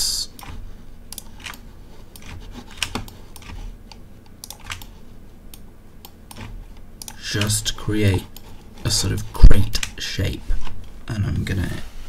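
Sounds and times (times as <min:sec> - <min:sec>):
keyboard and mouse clicks: 0:00.4 - 0:07.6.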